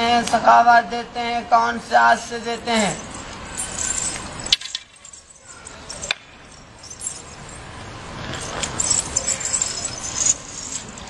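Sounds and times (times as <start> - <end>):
street noise: 0.0 - 11.0
light high-pitched rattling: 2.7 - 11.0.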